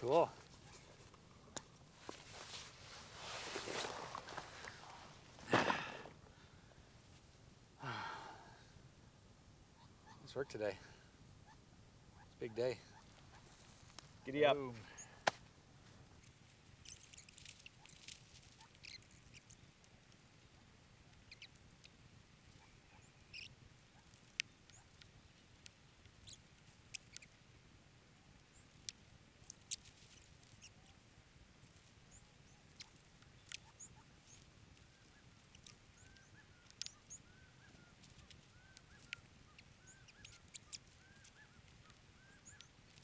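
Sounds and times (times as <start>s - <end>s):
tent clicks and rustles: 0.0s - 6.2s, 13.0s - 20.2s, 28.7s - 43.0s
faint high chirps: 32.1s - 43.0s.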